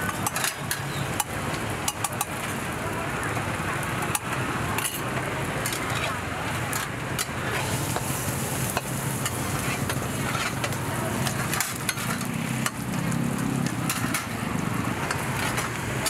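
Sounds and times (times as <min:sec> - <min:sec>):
metal utensils clicking: 0:00.0 - 0:02.5, 0:04.1 - 0:16.0
hot oil sizzling: 0:00.0 - 0:16.0
street stall bustle: 0:00.0 - 0:16.0.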